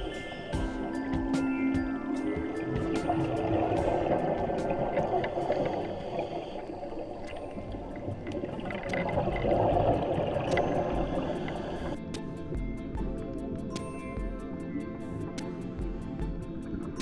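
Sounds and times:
music: 0.0s - 17.0s
underwater bubbling and gurgling: 0.0s - 17.0s.

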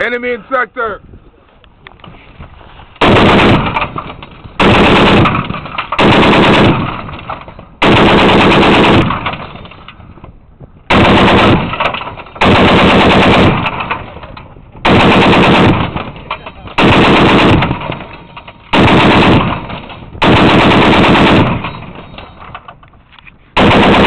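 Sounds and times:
gunfire echo: 3.0s - 9.8s, 10.9s - 22.4s, 23.6s - 24.0s
machine gun firing bursts: 3.0s - 9.8s, 10.9s - 22.5s, 23.6s - 24.0s.

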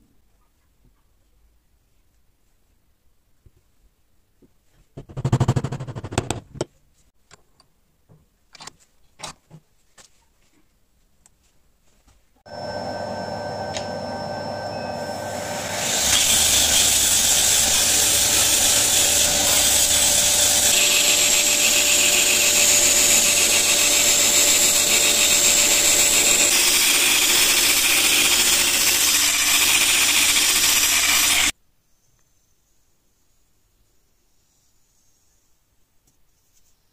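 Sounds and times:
belt grinder grinding hiss: 13.4s - 31.5s.

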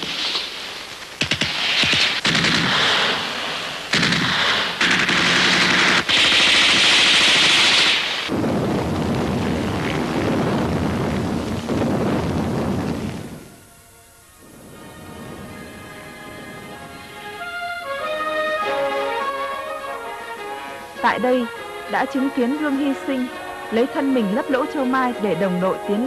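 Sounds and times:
single gunshots: 1.2s - 8.3s
machine-gun fire: 1.2s - 8.5s
dull din of battle: 1.2s - 13.6s.

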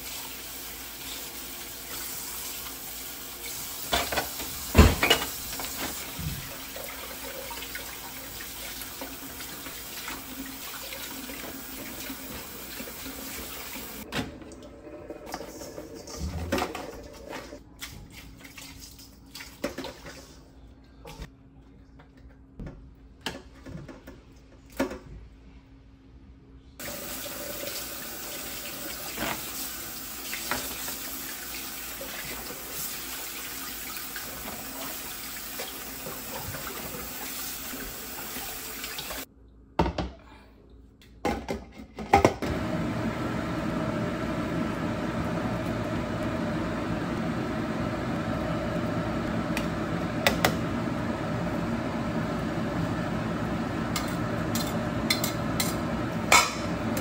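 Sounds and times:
tap water running into sink: 0.0s - 17.6s, 26.8s - 39.3s.

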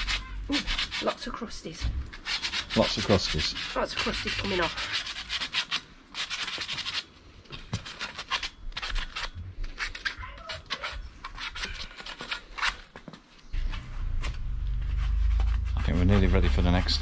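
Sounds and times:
hand sanding metal: 0.0s - 1.5s, 2.2s - 7.1s, 14.7s - 17.0s.

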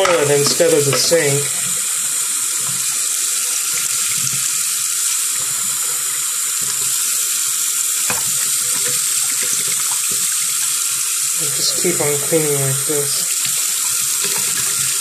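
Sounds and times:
tap water running into sink: 0.0s - 15.0s.

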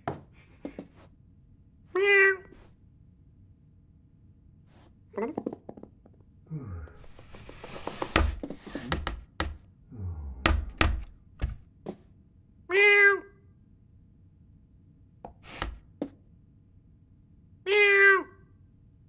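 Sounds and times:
cartoon clunks and thuds: 10.4s - 11.7s.

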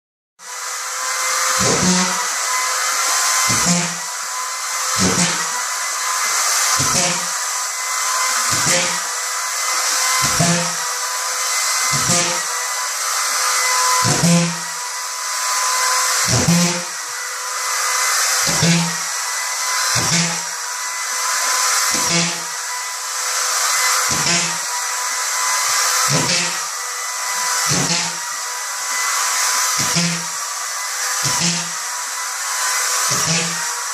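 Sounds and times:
screw gun whining: 0.6s - 33.9s
screws driven into drywall: 0.6s - 33.9s.

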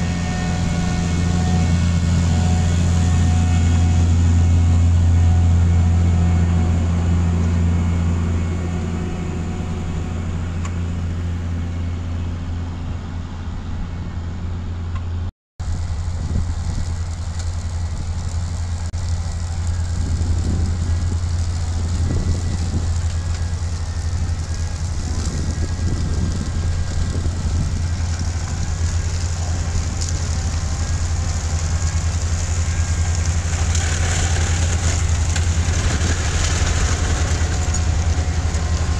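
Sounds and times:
heavy diesel engine drone: 0.0s - 38.9s
machinery clatter: 15.6s - 38.9s.

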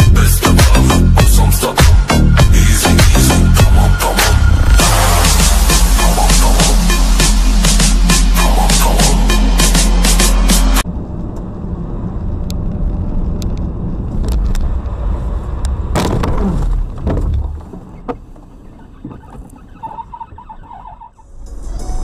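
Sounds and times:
car road and engine noise: 0.0s - 22.0s.

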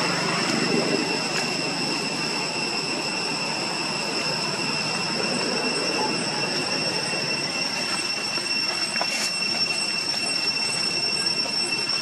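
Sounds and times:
high-pitched drone: 0.0s - 12.0s
rushing background noise: 0.0s - 12.0s.

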